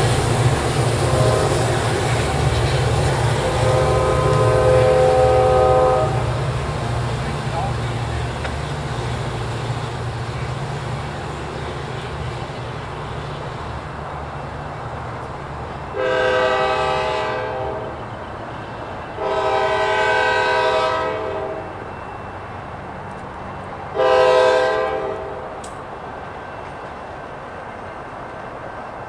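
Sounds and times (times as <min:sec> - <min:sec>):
train air horn blasts: 0:00.9 - 0:02.0, 0:03.3 - 0:06.4, 0:15.9 - 0:18.0, 0:19.2 - 0:21.7, 0:24.0 - 0:25.5.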